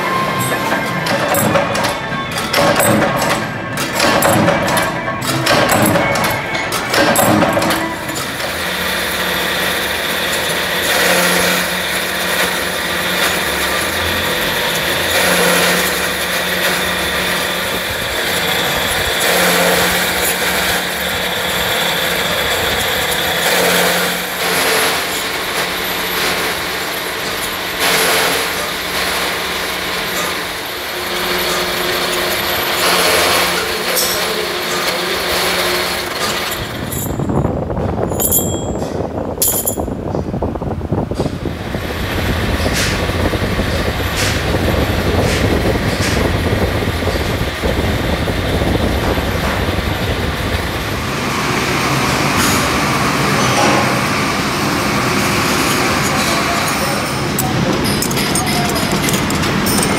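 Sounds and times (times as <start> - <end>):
metal cutting: 0.0 - 37.3, 51.4 - 59.9.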